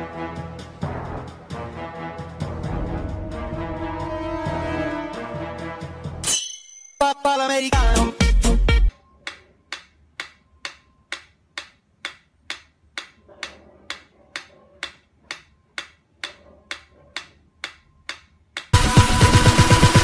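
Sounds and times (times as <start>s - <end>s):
loud music: 0.0s - 6.2s, 7.0s - 8.9s, 18.8s - 20.0s
metronome ticking: 9.2s - 18.8s.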